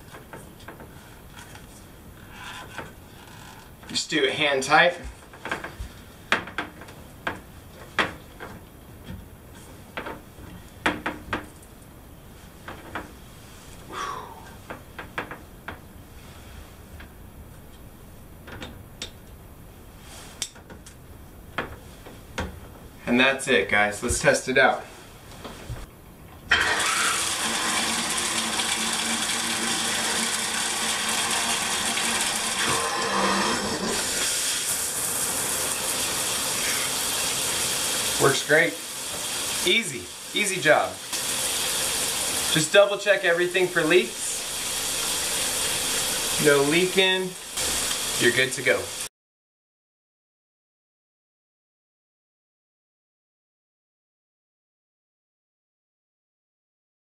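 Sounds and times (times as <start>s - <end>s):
shower spraying onto tile: 34.0s - 49.1s.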